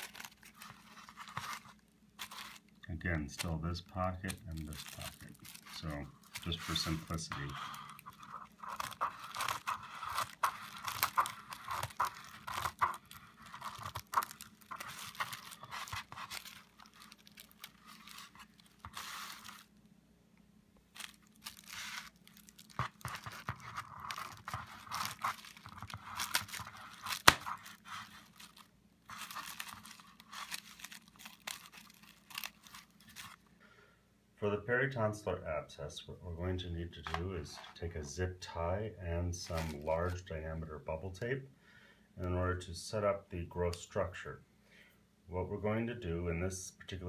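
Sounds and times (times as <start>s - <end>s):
scissors cutting plastic: 0.0s - 1.6s, 4.3s - 19.6s, 21.0s - 33.4s
bubble wrap crinkling: 0.0s - 19.9s, 20.8s - 33.5s, 39.4s - 40.3s
bubble wrap snap: 24.1s - 33.4s.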